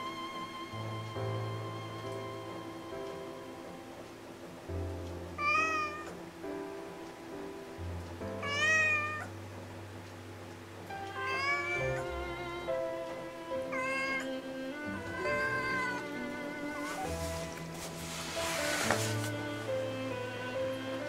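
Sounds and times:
soft background music: 0.0 - 21.0
cat meowing: 5.4 - 6.2, 8.4 - 9.3, 11.1 - 12.6, 13.6 - 17.1.

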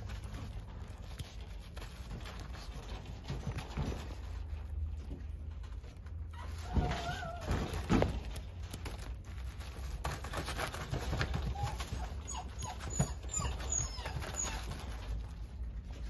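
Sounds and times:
puppy whining: 5.7 - 8.5, 10.2 - 16.0.

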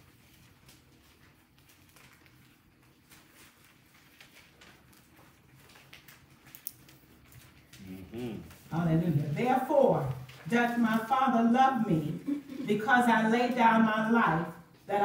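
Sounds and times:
pages being turned: 0.0 - 9.4.

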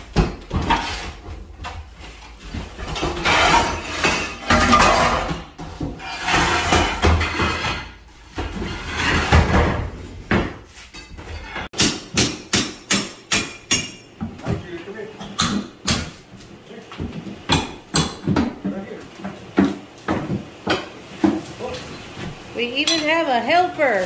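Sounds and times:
pry bars scraping floor tiles: 2.8 - 9.9.

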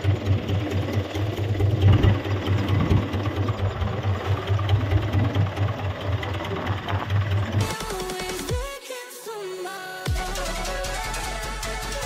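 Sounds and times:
boat engine idling: 0.0 - 8.8.

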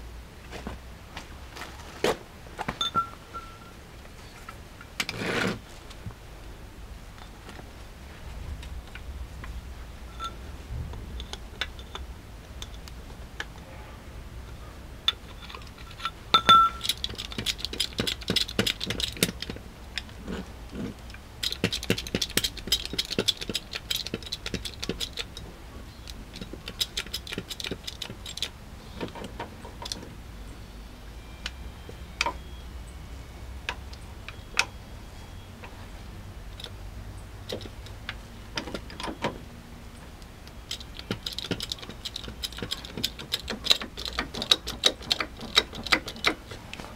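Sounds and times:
metal clicking and rattling: 11.1 - 13.6, 15.1 - 30.1, 37.4 - 39.3, 40.5 - 46.6.

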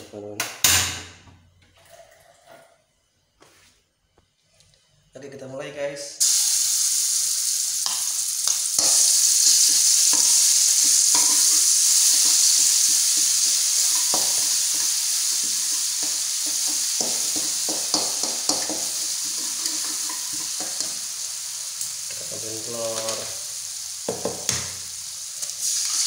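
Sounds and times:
vegetables sizzling in hot oil: 6.2 - 26.0
spatula scraping in a wok: 8.8 - 21.0.

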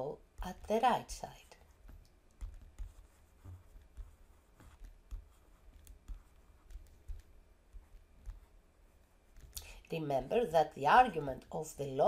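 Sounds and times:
stylus tapping on a tablet: 1.8 - 8.6.

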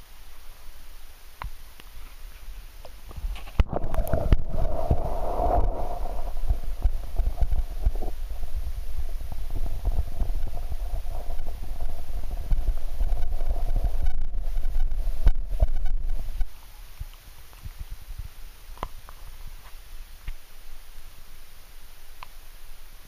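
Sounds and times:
faint steady hum: 0.0 - 23.0
underwater rumble: 3.2 - 16.5.

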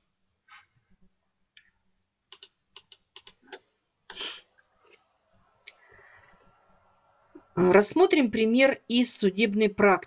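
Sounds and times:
computer keyboard clicking: 2.3 - 3.6.

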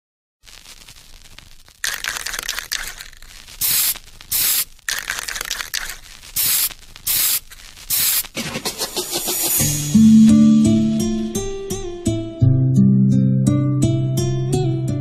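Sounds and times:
steady crackling noise: 0.4 - 9.6
short bursts of hiss: 2.0 - 9.9.

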